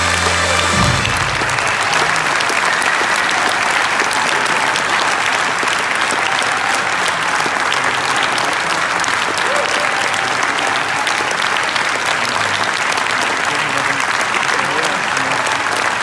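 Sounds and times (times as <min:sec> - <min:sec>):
music low note: 0:00.0 - 0:02.4
audience applauding: 0:00.0 - 0:16.0.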